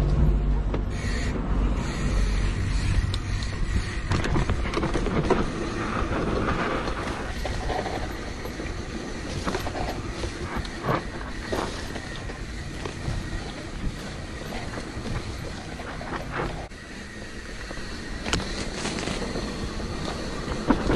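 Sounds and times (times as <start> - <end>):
bike rattling over bumps: 1.8 - 20.9
tyres rumbling on dirt: 1.8 - 20.9
wind noise on microphone: 1.9 - 16.8, 17.6 - 20.9
grass brushing: 5.0 - 20.9.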